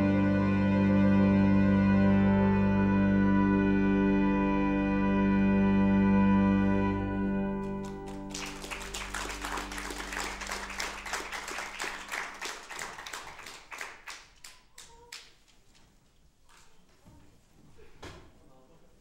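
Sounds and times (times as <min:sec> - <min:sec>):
pipe organ chord: 0:00.0 - 0:12.6
audience applauding: 0:07.6 - 0:15.4.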